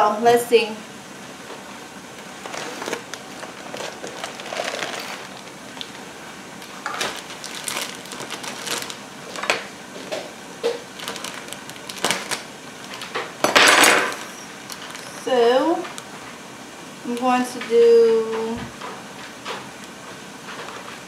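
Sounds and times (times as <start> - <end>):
plastic bag crinkling: 2.2 - 16.0.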